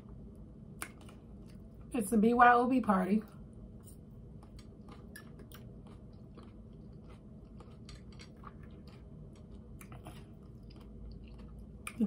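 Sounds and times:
close-up chewing: 3.8s - 12.0s.

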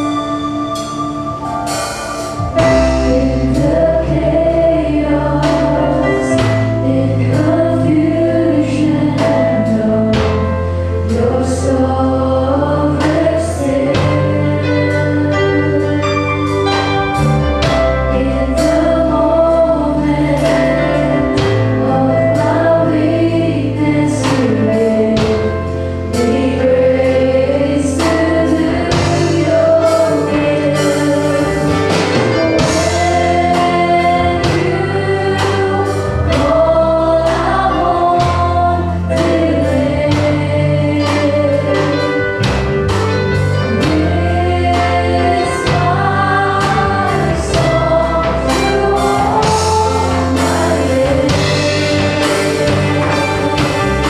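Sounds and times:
drum kit hits: 0.0s - 54.0s
long held bass notes: 0.0s - 54.0s
backing singers: 2.2s - 42.7s, 43.6s - 54.0s
woman singing lead: 43.7s - 54.0s.

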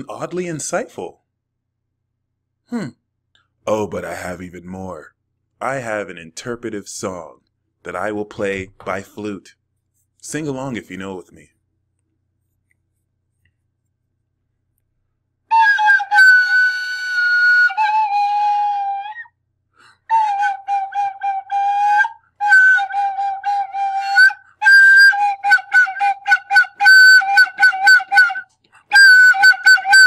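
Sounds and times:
small flute playing: 15.5s - 19.3s, 20.1s - 30.0s.

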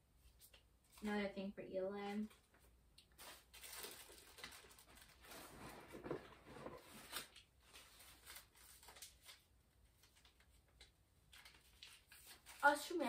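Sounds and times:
papers rustling and clicking: 2.2s - 13.0s.

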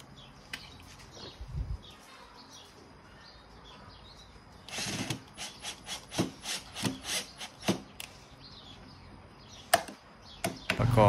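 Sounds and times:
cordless drill driving a screw: 4.7s - 7.8s.

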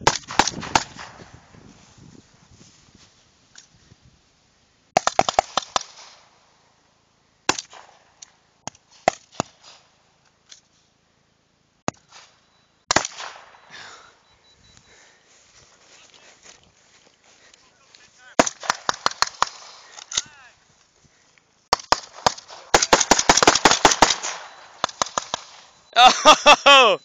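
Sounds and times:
rifle shots: 0.0s - 1.3s, 5.0s - 6.4s, 7.5s - 8.1s, 12.0s - 13.7s, 18.4s - 20.2s, 21.7s - 25.8s.

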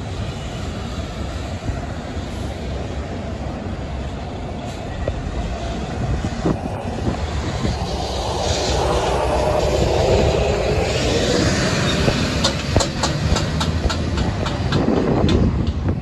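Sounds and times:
truck diesel engine: 2.4s - 15.9s
truck knocks and rattles: 12.4s - 16.0s.

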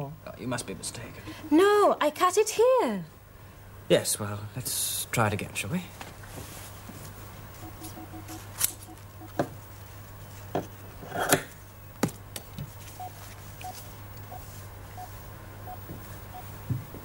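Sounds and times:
low steady hum: 0.0s - 17.0s
faint electronic beep: 7.6s - 9.4s.

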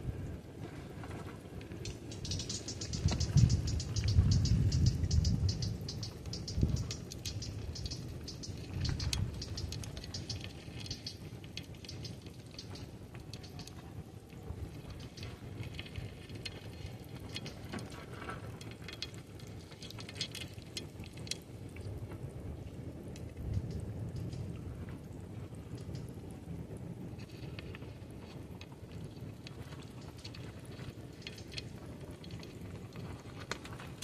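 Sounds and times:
quick high ticking: 1.8s - 13.8s.

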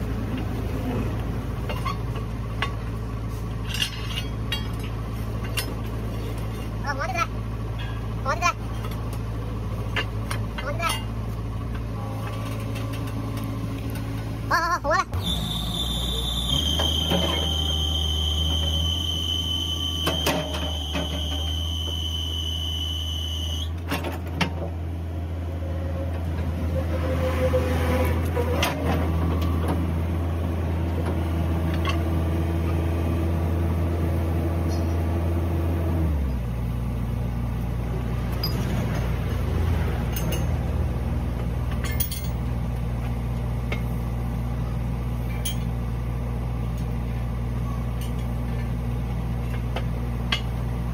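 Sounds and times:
heavy engine idling: 0.0s - 50.9s
high steady whine: 15.2s - 23.8s.

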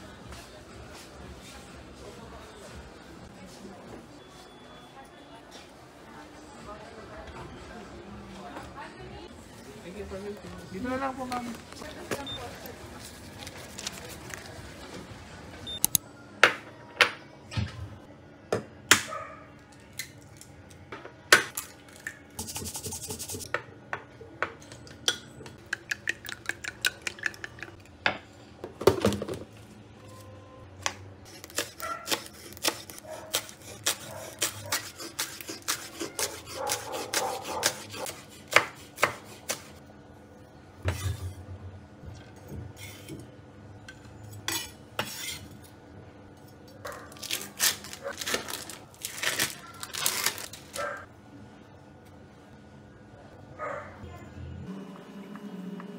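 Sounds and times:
knife chopping on wooden board: 31.5s - 39.7s.

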